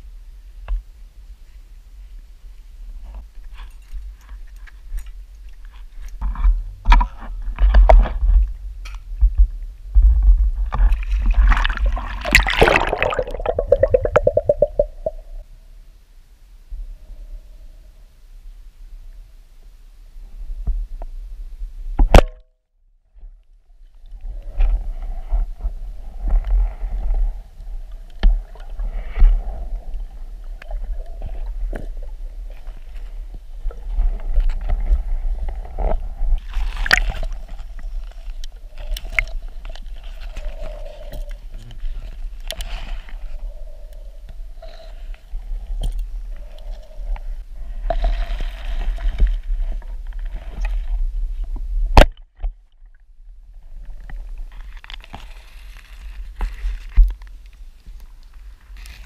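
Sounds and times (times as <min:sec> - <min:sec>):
clicks and knocks underwater: 0:03.5 - 0:15.4, 0:28.0 - 0:43.3
underwater rumble: 0:10.0 - 0:15.5, 0:24.2 - 0:51.8
water rushing: 0:12.1 - 0:15.4.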